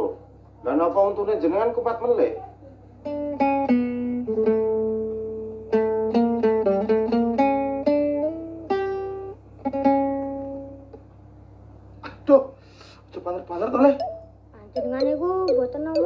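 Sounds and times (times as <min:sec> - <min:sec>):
acoustic guitar plucked melody: 0:03.0 - 0:11.0, 0:14.0 - 0:16.0.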